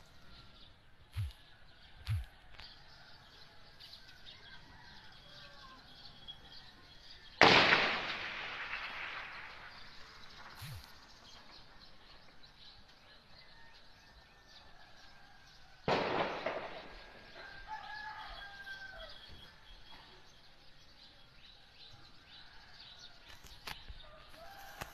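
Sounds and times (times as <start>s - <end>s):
rooster crowing: 2.2s - 6.0s, 16.7s - 19.4s, 24.0s - 24.9s
gunshot with echo: 7.4s - 11.0s, 15.9s - 17.4s.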